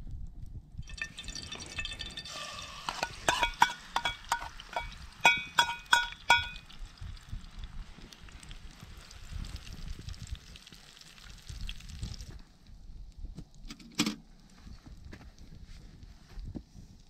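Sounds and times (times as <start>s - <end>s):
oil sizzling: 0.8s - 12.1s
metal spoon clinking on a bowl: 1.8s - 6.6s.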